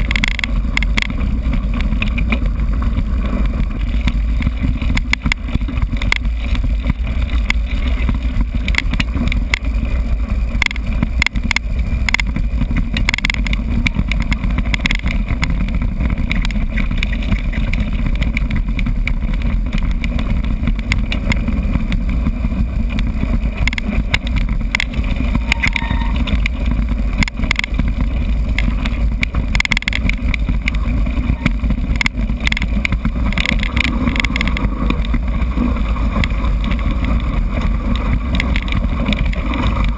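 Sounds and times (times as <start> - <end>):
bike rattling over bumps: 0.0 - 39.9
wind buffeting microphone: 0.0 - 39.9.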